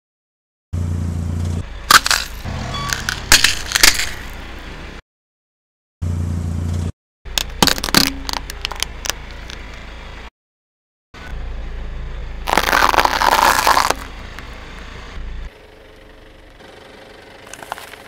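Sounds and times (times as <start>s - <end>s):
low engine hum: 0.8s - 5.0s, 6.0s - 10.3s, 11.2s - 18.0s
tyre crushing and cracking objects: 1.9s - 4.4s, 7.3s - 9.6s, 12.5s - 14.1s.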